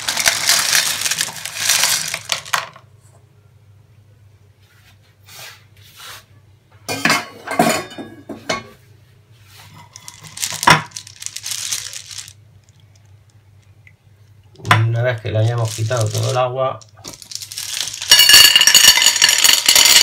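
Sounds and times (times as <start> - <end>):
shells rattling in a colander: 0.0 - 2.7, 10.0 - 12.4, 15.5 - 20.0.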